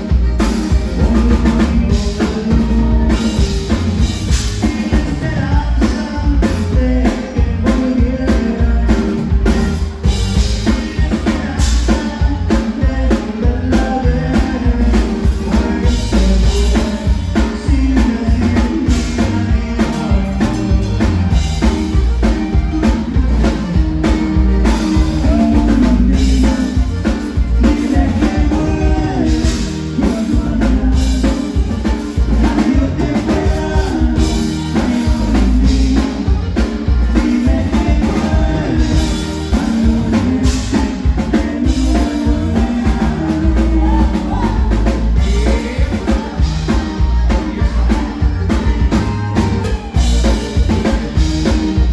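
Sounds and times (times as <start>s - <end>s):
button accordion: 0.0s - 51.9s
drum kit dance beat: 0.0s - 51.9s
electric bass: 0.0s - 51.9s
man singing: 0.0s - 51.9s.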